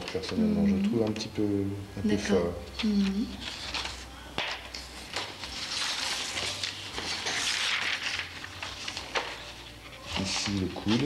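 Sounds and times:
paper rustling and crinkling: 0:02.8 - 0:11.0.

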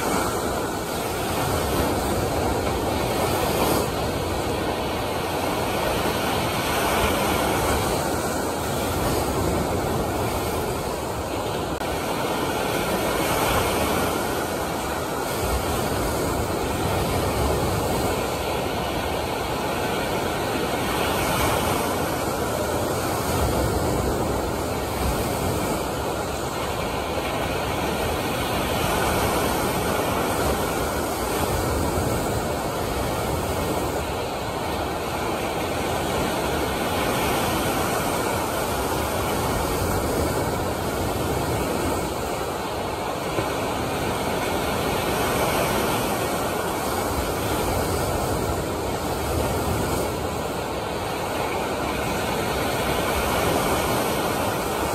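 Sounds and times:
waves breaking and rushing: 0:00.0 - 0:54.9.

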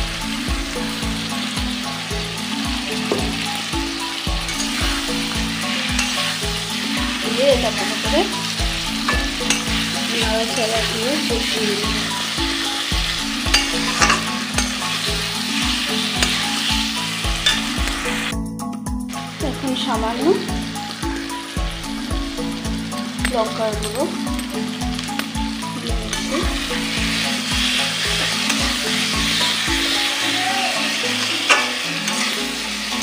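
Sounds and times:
spice paste sizzling in oil: 0:00.0 - 0:18.4, 0:19.0 - 0:33.0
metal spatula scraping pan: 0:08.5 - 0:11.5, 0:13.4 - 0:15.1, 0:31.1 - 0:33.0.

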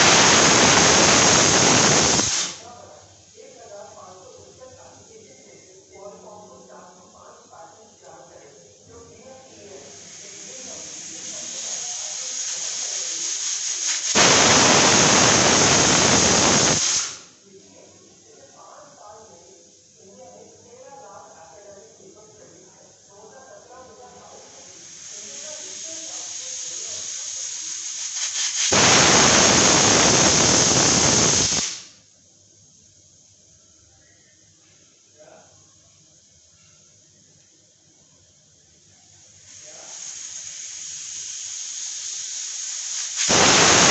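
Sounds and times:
pressure cooker steam whistle: 0:00.0 - 0:02.6, 0:10.0 - 0:17.3, 0:24.5 - 0:31.9, 0:39.5 - 0:43.9.

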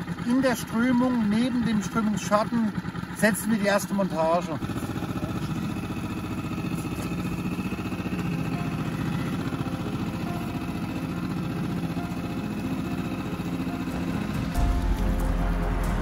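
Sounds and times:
boat motor running: 0:00.0 - 0:16.0
music with heavy bass: 0:13.9 - 0:16.0.

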